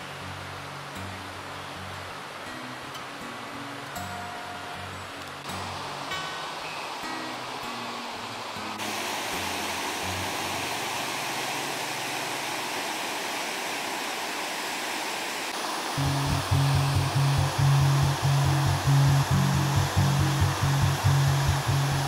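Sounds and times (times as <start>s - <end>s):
soft background music: 0.0s - 11.8s, 16.0s - 22.0s
waterfall rushing: 5.4s - 22.0s
music with deep bass: 16.0s - 22.0s.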